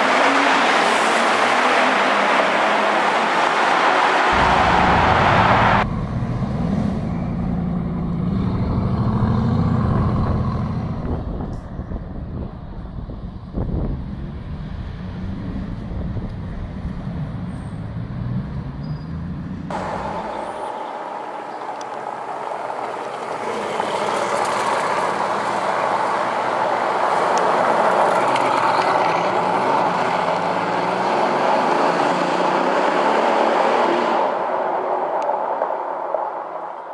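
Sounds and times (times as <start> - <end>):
car engine and exhaust driving off: 4.3 - 34.6
wind buffeting microphone: 9.9 - 17.3.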